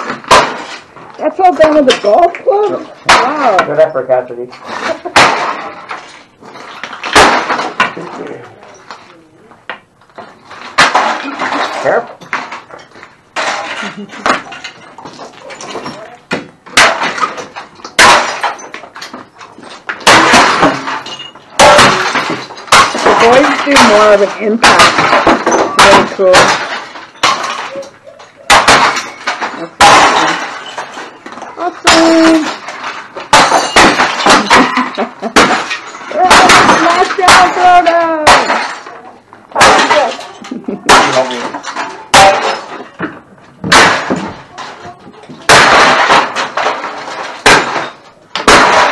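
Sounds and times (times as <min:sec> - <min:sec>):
crowbar smashing electronics and glass: 0:00.0 - 0:02.3, 0:02.9 - 0:08.9, 0:10.2 - 0:48.9
debris clattering and shattering: 0:00.0 - 0:48.9
person speaking: 0:31.6 - 0:32.6.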